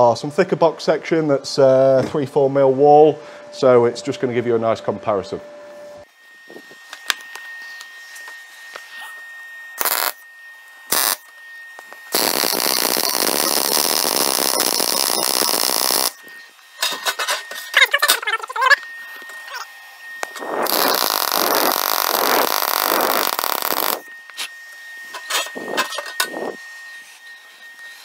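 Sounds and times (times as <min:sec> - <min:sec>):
thin high tone: 0:00.0 - 0:28.0
welding arc crackling: 0:09.8 - 0:10.2, 0:10.9 - 0:11.3, 0:12.0 - 0:16.3, 0:20.2 - 0:24.1
welding arc strikes: 0:09.8 - 0:10.2, 0:10.9 - 0:18.3, 0:20.2 - 0:24.4.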